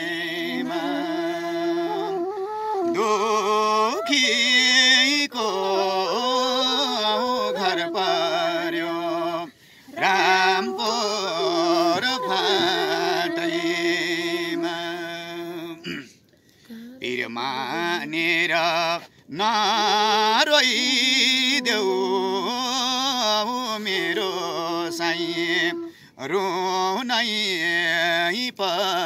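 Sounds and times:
man singing wordless line: 0.0s - 2.2s, 2.9s - 16.1s, 17.0s - 29.0s
bamboo flute: 0.0s - 8.8s, 9.9s - 15.8s, 24.9s - 26.0s.

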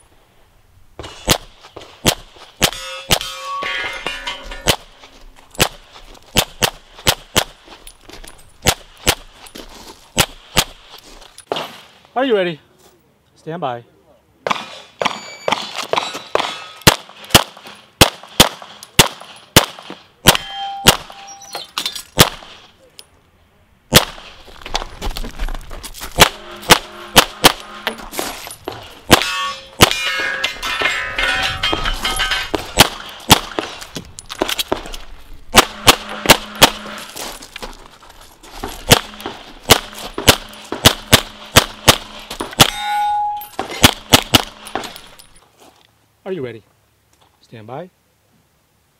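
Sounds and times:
steel targets clanging: 2.6s - 4.9s, 15.1s - 16.9s, 20.3s - 22.1s, 26.2s - 33.8s, 35.5s - 37.5s, 38.6s - 45.4s
rapid pistol shots: 14.5s - 21.2s, 22.2s - 22.6s, 26.2s - 27.9s, 32.5s - 33.8s, 35.5s - 37.0s, 38.8s - 42.8s, 43.8s - 44.9s.

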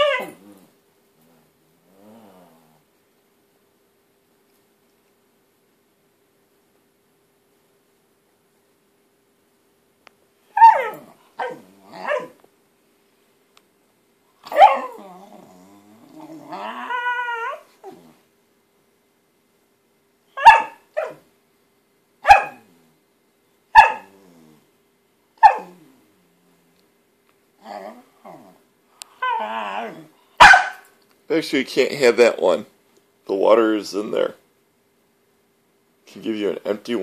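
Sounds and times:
dog growling into a whine: 0.0s - 2.9s, 10.7s - 12.4s, 14.5s - 18.2s, 24.0s - 24.7s, 25.6s - 26.6s, 27.6s - 28.6s, 29.2s - 30.2s
dog barking sharply: 10.6s - 12.4s, 20.4s - 21.2s, 22.2s - 22.6s, 23.8s - 24.1s, 25.4s - 25.7s, 30.4s - 30.9s.

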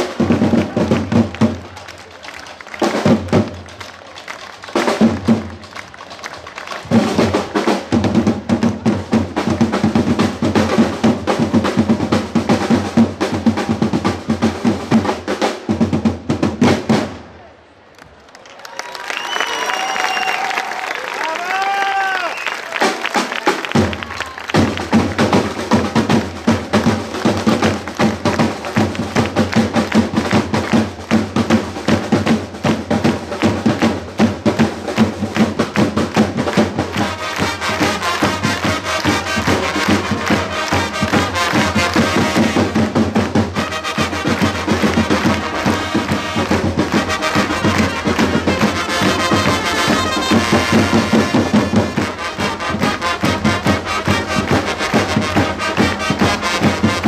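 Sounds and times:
side drums march rhythm: 0.0s - 17.2s, 21.6s - 57.0s
trumpets playing fanfare: 36.7s - 57.0s.

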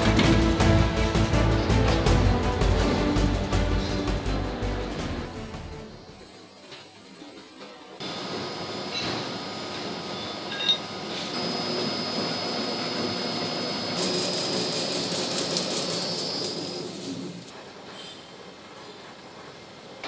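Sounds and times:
machine tool boring steel: 10.1s - 17.5s.

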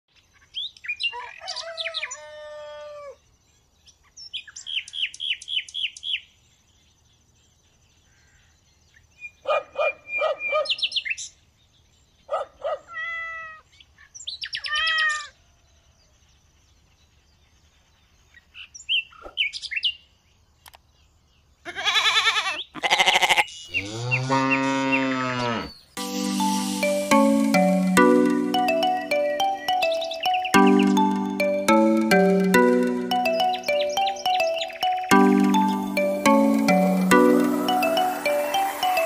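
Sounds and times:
birds chirping: 25.6s - 39.0s.

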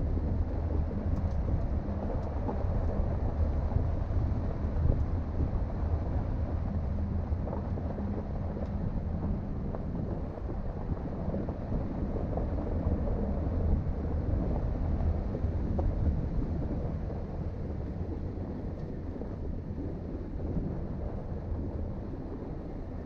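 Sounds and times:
vehicle driving on dirt road: 0.0s - 23.0s
faint clicks from road surface: 0.5s - 2.8s, 7.3s - 10.6s, 18.7s - 19.4s.

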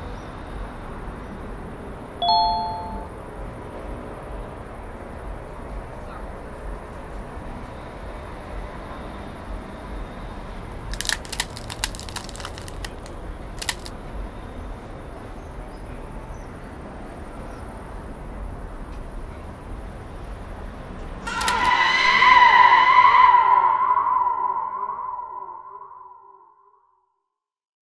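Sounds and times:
city street ambience: 0.0s - 26.4s
sharp cracking snaps: 10.9s - 14.0s
eerie ghost scream effect: 21.2s - 26.6s.

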